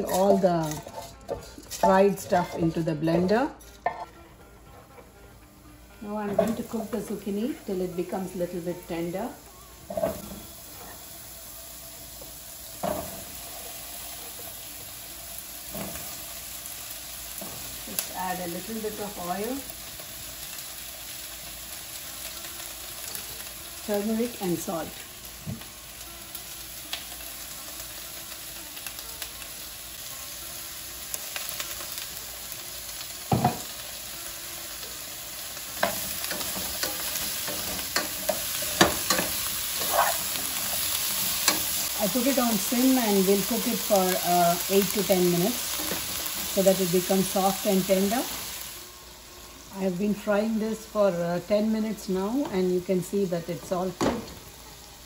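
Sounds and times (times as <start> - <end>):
wooden spatula scraping a pan: 0.0 - 4.2
vegetables sizzling in oil: 0.0 - 4.3, 5.3 - 55.0.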